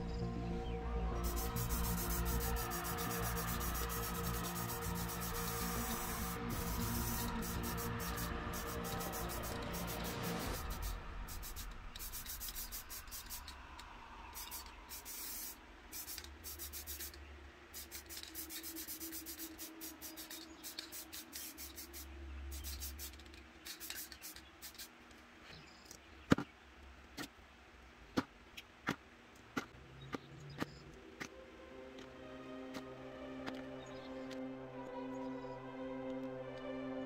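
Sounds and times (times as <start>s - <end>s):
spray paint can hissing bursts: 1.2s - 13.7s, 14.3s - 25.0s.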